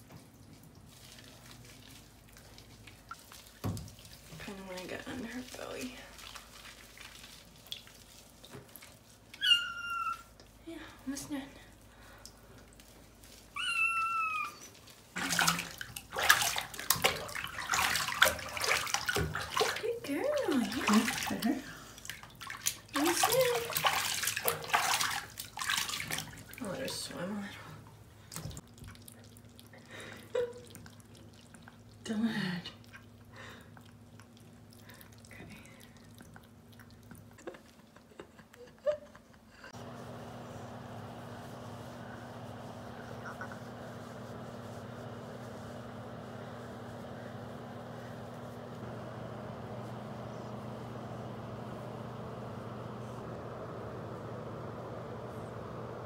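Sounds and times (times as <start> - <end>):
bath water splashing: 0.0 - 38.3, 39.7 - 56.0
kitten meowing: 9.4 - 10.3, 13.6 - 14.6.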